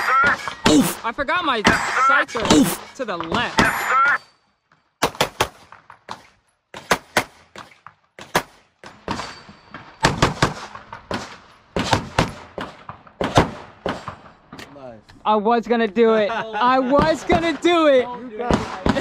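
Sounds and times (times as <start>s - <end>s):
pistol shots: 5.0s - 14.4s, 18.5s - 19.0s.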